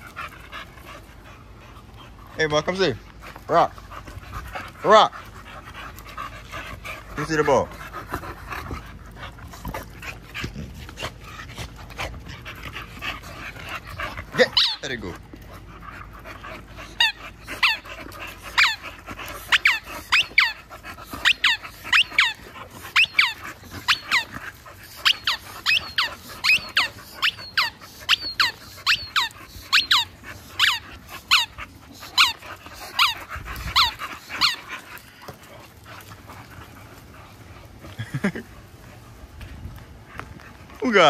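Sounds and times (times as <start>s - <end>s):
squeaky dog ball squeaking: 14.6s - 14.9s.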